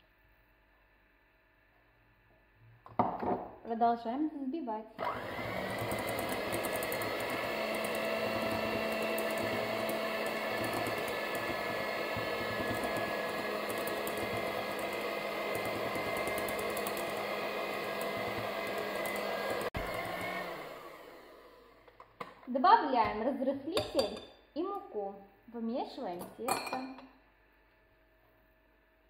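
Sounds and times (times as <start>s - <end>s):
electric hand mixer whining: 5.0s - 21.8s.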